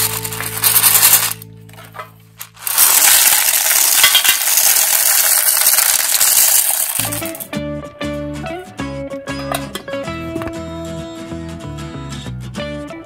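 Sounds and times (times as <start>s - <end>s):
guitar music: 0.0s - 2.6s, 7.0s - 13.0s
candies clattering into plastic: 0.0s - 7.5s.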